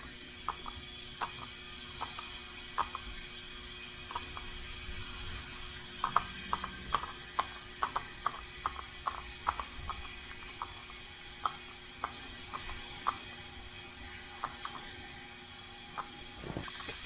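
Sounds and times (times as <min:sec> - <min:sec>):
compressed air hissing: 0:06.0 - 0:17.0.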